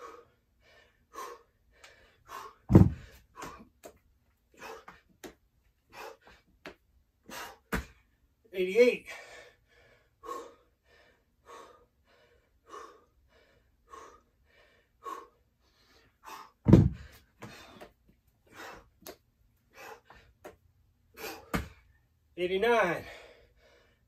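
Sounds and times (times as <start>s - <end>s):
man breathing hard: 0.0s - 5.2s, 5.8s - 6.6s, 7.2s - 7.8s, 9.0s - 22.1s, 23.0s - 24.0s
dumbbells thudding on floor: 2.7s - 3.6s, 7.7s - 8.0s, 16.6s - 17.7s, 21.4s - 21.8s.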